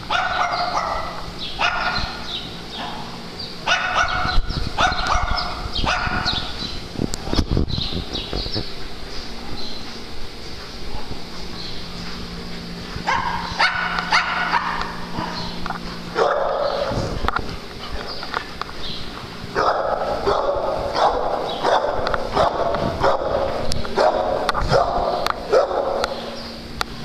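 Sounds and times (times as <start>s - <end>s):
dogs barking and yipping: 0.0s - 6.8s, 12.6s - 26.5s.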